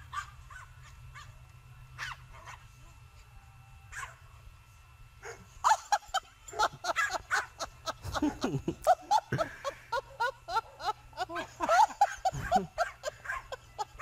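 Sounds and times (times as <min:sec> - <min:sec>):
dog yipping: 0:00.1 - 0:01.3, 0:02.0 - 0:02.6, 0:03.9 - 0:04.2, 0:06.5 - 0:07.5, 0:12.0 - 0:13.6.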